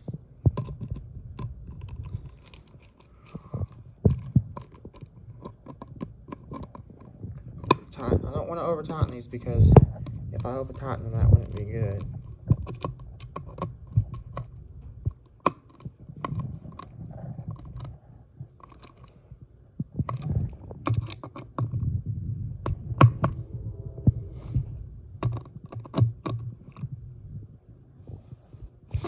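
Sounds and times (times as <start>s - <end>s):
low rumble: 21.7s - 28.6s.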